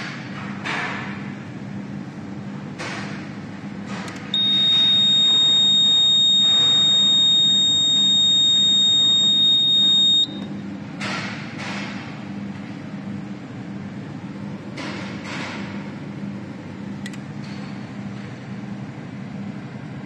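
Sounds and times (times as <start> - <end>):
high-pitched alarm buzzer beep: 4.4 - 10.5.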